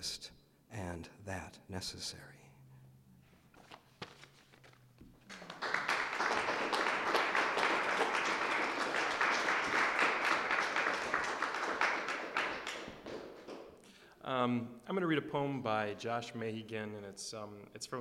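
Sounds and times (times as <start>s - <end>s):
audience applause: 5.3s - 13.7s.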